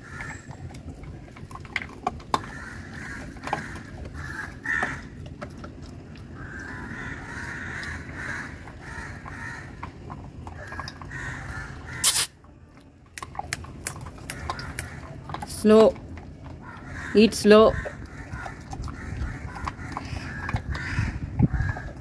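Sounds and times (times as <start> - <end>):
puppy gnawing a chew stick: 0.0 - 11.5, 12.8 - 17.1, 17.8 - 22.0
harsh cawing calls: 2.5 - 5.0
teeth clicking on stick: 13.2 - 15.5.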